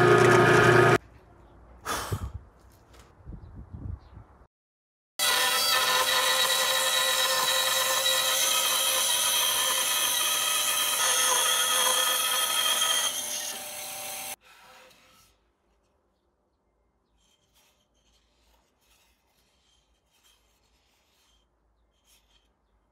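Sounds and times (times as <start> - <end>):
bandsaw cutting wood: 0.0 - 1.0, 5.2 - 14.9.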